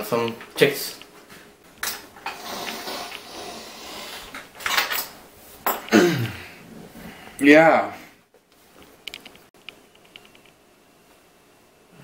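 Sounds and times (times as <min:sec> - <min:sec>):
dishes and cutlery clinking: 0:04.6 - 0:05.9.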